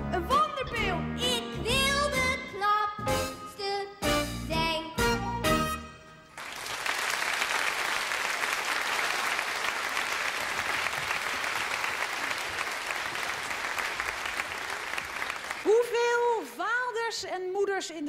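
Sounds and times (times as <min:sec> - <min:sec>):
audience applauding: 0:06.4 - 0:15.8.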